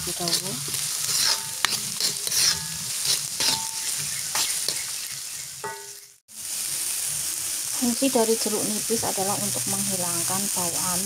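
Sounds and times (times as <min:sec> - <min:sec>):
metal spatula scraping pan: 0:00.0 - 0:06.1
food sizzling in a wok: 0:00.0 - 0:11.0.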